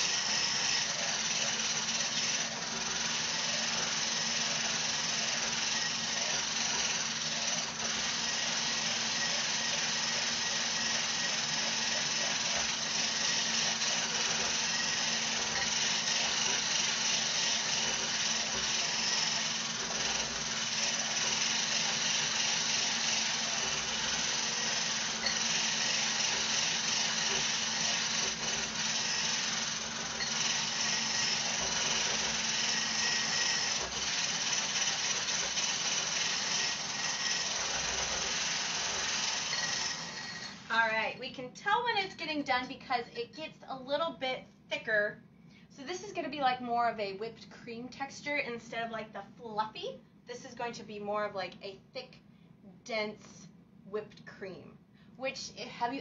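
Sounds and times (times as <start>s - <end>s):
immersion blender whipping cream: 0.0s - 40.7s.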